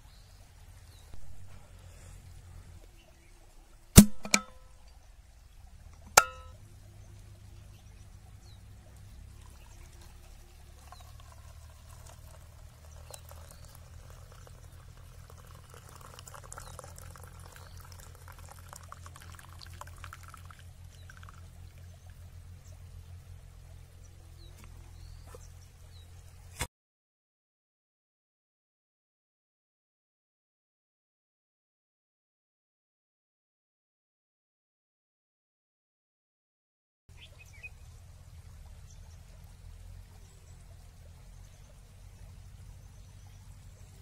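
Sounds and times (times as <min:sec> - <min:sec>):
flask stopper clicks: 0:04.0 - 0:04.6
drink trickling into cup: 0:09.3 - 0:21.9.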